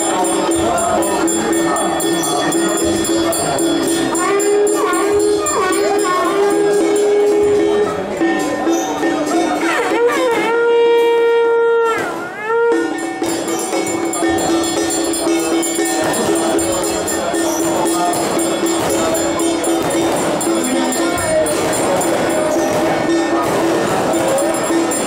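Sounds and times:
ritual music with held tone: 0.0s - 11.4s, 12.1s - 25.0s
horn trumpet blast: 9.8s - 13.4s
jingling: 13.2s - 25.0s.

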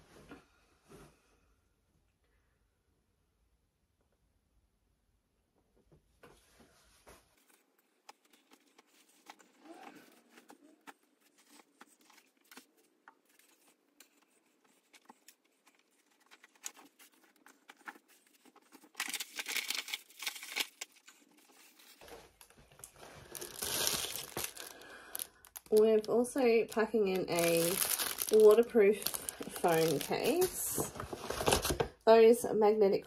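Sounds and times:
packaging crinkling and rustling: 7.4s - 32.0s.

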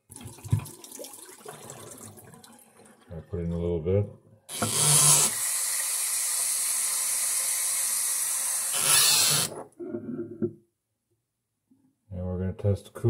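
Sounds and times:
faucet running water into bottle: 0.0s - 3.0s, 4.5s - 9.1s.

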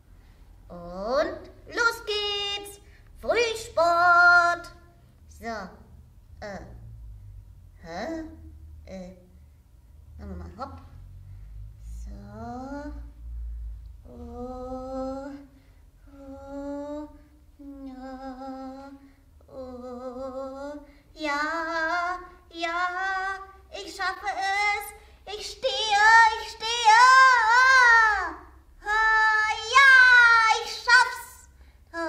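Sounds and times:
woman singing wordless notes: 0.7s - 6.8s, 11.8s - 13.2s, 14.0s - 32.0s.

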